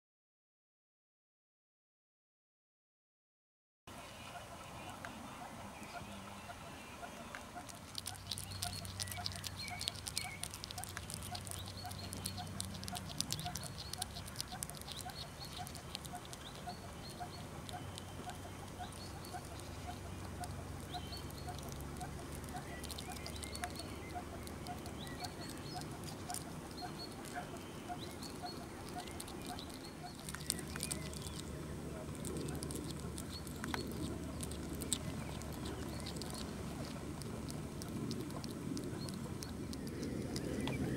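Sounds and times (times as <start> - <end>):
hedgehog chewing and smacking: 6.0 - 40.9.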